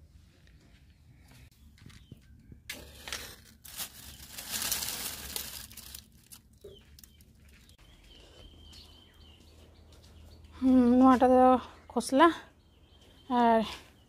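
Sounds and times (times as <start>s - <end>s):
dry leaves rustling and crackling: 2.8s - 7.7s.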